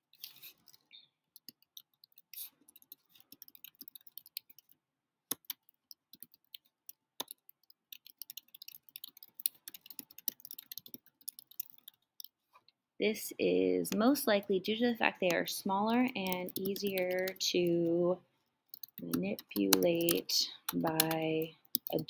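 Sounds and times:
typing on computer keyboard: 0:01.4 - 0:12.3, 0:16.0 - 0:17.4, 0:18.7 - 0:22.0.

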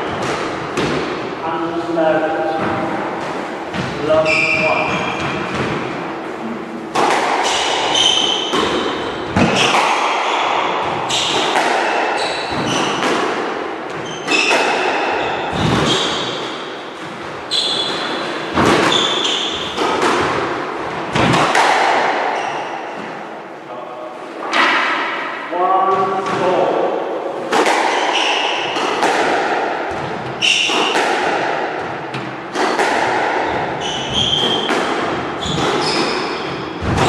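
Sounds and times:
squash ball hit by rackets: 0:00.0 - 0:01.4, 0:02.0 - 0:23.3, 0:24.4 - 0:25.4, 0:26.1 - 0:37.0
shoes squeaking on wooden floor: 0:02.5 - 0:13.0, 0:13.9 - 0:14.5, 0:15.1 - 0:16.4, 0:17.4 - 0:19.8, 0:30.1 - 0:30.9, 0:33.4 - 0:37.0
ball slapping off walls: 0:06.9 - 0:17.2, 0:18.0 - 0:22.4, 0:27.4 - 0:37.0.

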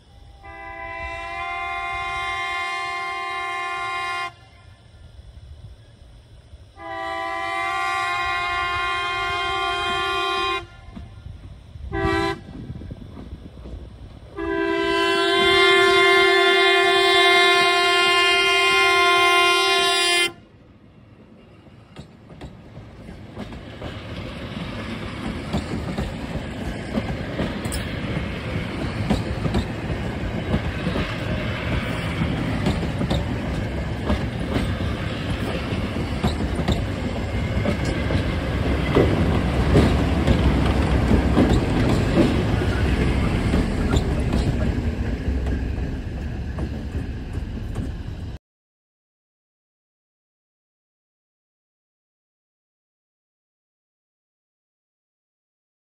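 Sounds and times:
train air horn: 0:00.1 - 0:05.2, 0:06.8 - 0:11.2, 0:11.8 - 0:12.6, 0:14.3 - 0:20.5
train cars rumbling past: 0:00.1 - 0:48.4.

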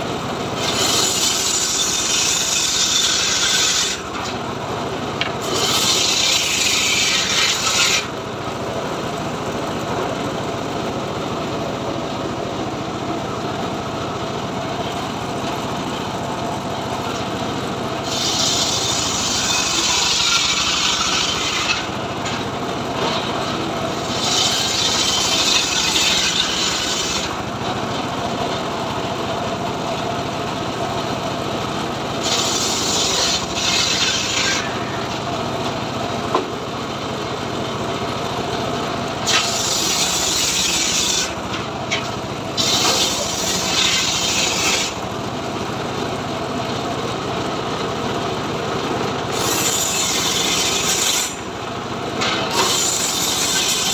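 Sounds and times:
engine running: 0:00.0 - 0:03.1, 0:03.9 - 0:53.9
saw blade cutting wood: 0:00.5 - 0:04.4, 0:05.2 - 0:08.2, 0:18.0 - 0:27.4, 0:32.2 - 0:35.3, 0:39.2 - 0:45.0, 0:49.3 - 0:51.5, 0:52.2 - 0:53.9.

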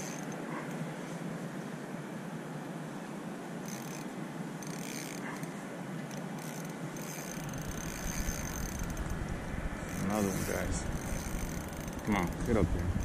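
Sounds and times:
spinning reel whirring: 0:00.0 - 0:00.4, 0:03.6 - 0:05.5, 0:06.1 - 0:09.2, 0:09.8 - 0:13.0.

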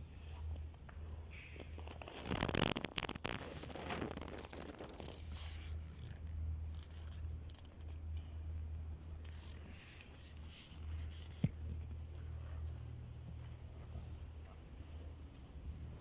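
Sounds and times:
steady low hum: 0:00.0 - 0:16.0
scratchy rustling and scraping: 0:01.6 - 0:08.0, 0:09.2 - 0:11.6.

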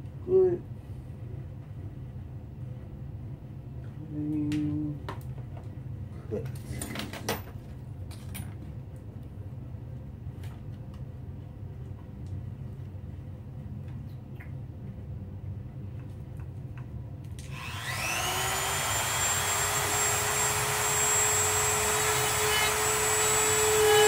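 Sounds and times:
rotary tool whining: 0:17.5 - 0:24.0.

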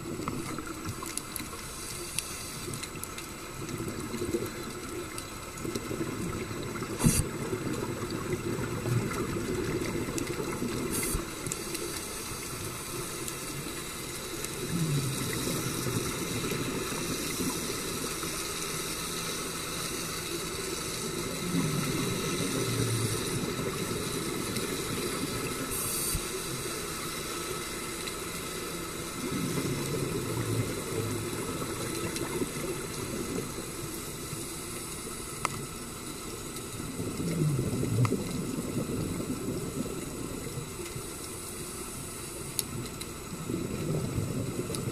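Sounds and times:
steady underwater hiss: 0:00.0 - 0:44.9
regulator exhale bubbling: 0:05.9 - 0:12.7, 0:14.5 - 0:17.7.

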